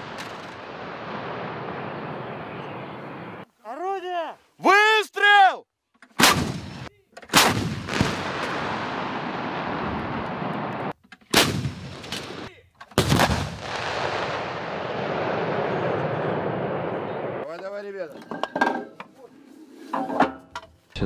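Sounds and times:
long rolling echo: 0.0s - 3.4s, 13.6s - 17.4s
artillery guns firing: 6.2s - 9.7s, 11.3s - 15.7s.

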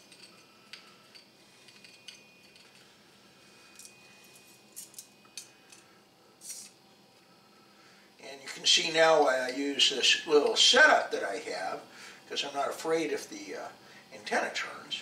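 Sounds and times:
metallic clinks and scrapes: 0.0s - 6.8s.

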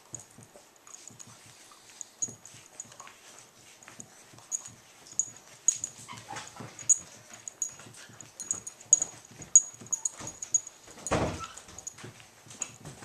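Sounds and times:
dog scuffing and thumping on floor: 2.2s - 13.0s
dog collar tags jingling: 4.5s - 12.8s.

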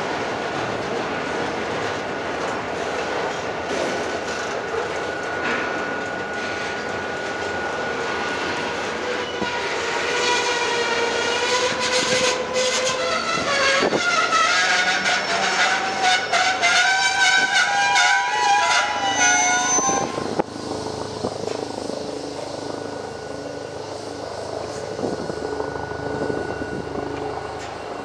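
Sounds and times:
train wheels rumbling on rail: 0.0s - 28.0s
sustained wavering tone: 4.7s - 10.0s, 18.8s - 28.0s.

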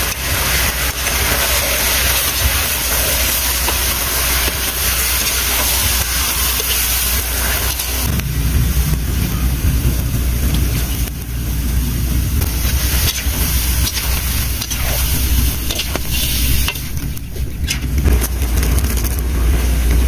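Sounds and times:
metal spatula scraping a pan: 0.0s - 8.1s, 12.5s - 18.0s
frogs sizzling in a wok: 0.0s - 20.0s
low rumble: 0.0s - 20.0s.

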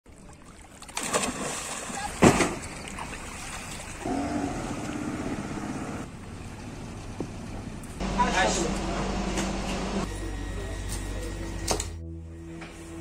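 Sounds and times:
person diving into water splash: 0.8s - 4.0s
boat motor running: 4.0s - 10.7s.

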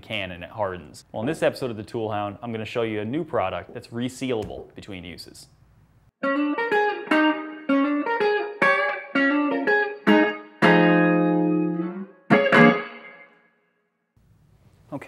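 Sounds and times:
plucked guitar music: 6.2s - 13.4s.

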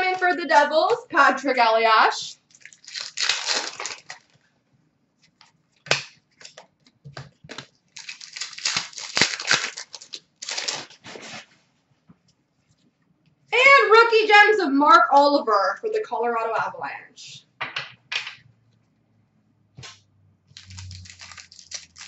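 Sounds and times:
foil wrappers tearing and crinkling: 2.4s - 4.4s, 7.5s - 11.5s, 20.6s - 22.0s.

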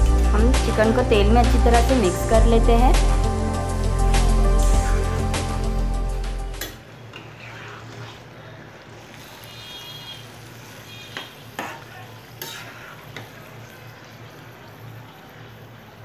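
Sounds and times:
chicken sizzling in a pan: 7.9s - 16.0s
spatula scraping and tapping pan: 11.0s - 13.4s.

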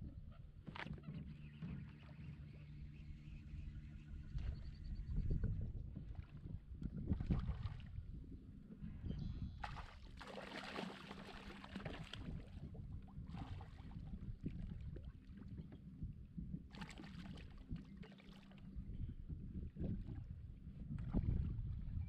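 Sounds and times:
low steady rumble: 0.0s - 22.0s
fish splashing at water surface: 9.6s - 12.4s.

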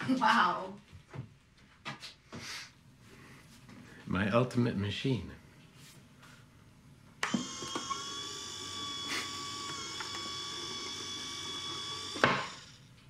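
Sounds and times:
small electric motor whirring: 7.2s - 12.9s.

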